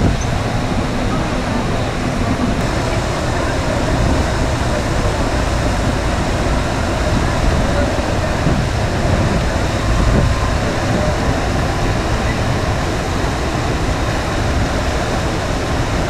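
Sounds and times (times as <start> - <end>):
low uneven rumble: 0.0 - 16.0
water rushing: 0.0 - 16.0.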